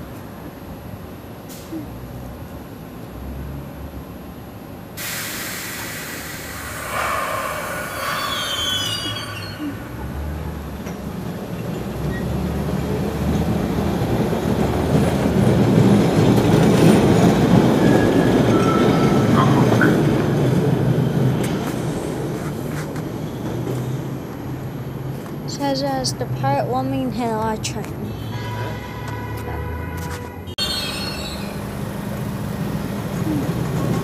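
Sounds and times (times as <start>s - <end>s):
rumble of wheels on track: 0.0s - 34.0s
train wheels squealing on rail: 5.0s - 10.5s, 11.6s - 12.4s, 17.6s - 20.2s, 30.6s - 31.7s.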